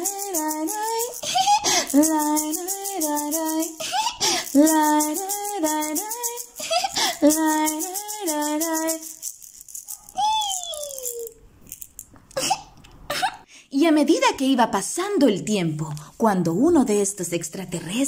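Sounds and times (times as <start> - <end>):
woman singing wordless melody: 0.0 - 9.3
shaker rattle: 0.0 - 12.2.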